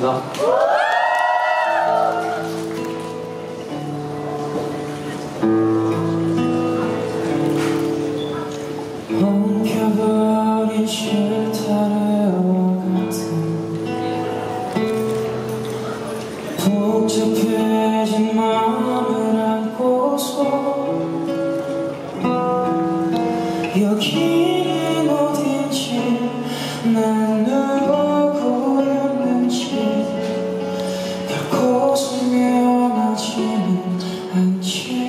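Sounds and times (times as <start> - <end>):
plucked acoustic guitar: 2.2 - 35.0
man singing into microphone: 9.1 - 14.3, 16.6 - 21.4, 23.5 - 35.0.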